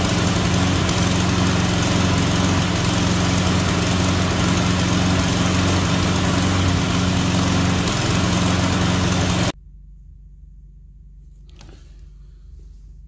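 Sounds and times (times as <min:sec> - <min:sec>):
lawn mower engine running: 0:00.0 - 0:09.6.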